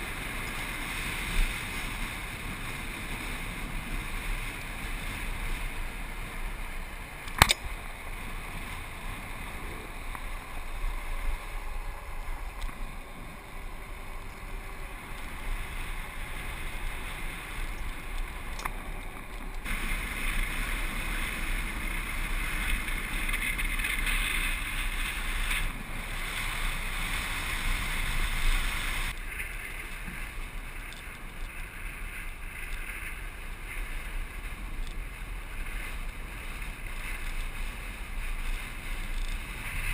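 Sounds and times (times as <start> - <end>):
land yacht rolling: 0.0 - 39.9
sharp click: 7.2 - 7.7.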